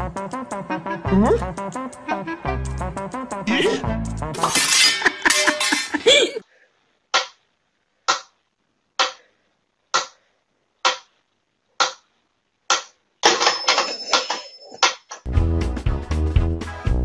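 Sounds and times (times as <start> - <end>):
metronome ticking: 11.8 - 12.0.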